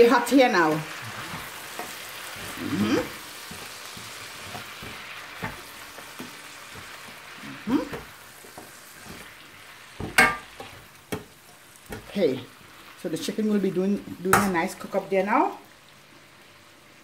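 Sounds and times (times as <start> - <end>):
chicken sizzling in a pan: 0.0 - 17.0
spatula knocking on pan: 10.0 - 12.1.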